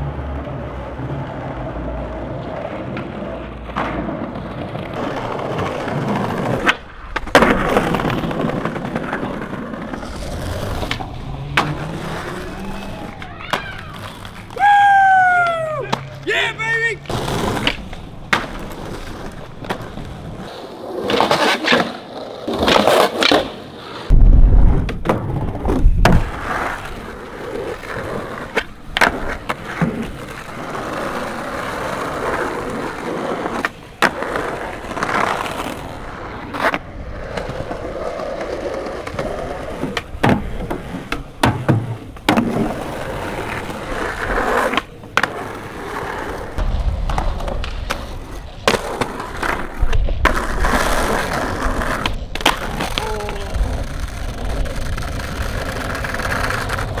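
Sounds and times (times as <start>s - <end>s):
skateboard wheels rolling on concrete: 0.0s - 57.0s
skateboard clacking on ground: 0.3s - 23.8s, 24.8s - 57.0s.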